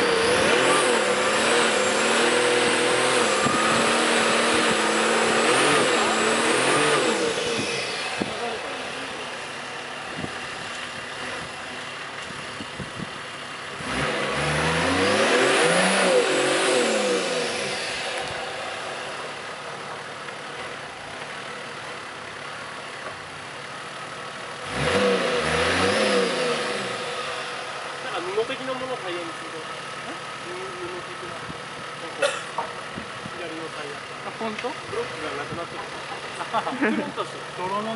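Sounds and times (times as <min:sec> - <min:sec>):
engine revving: 0:00.0 - 0:11.8, 0:13.7 - 0:20.8, 0:24.5 - 0:32.7.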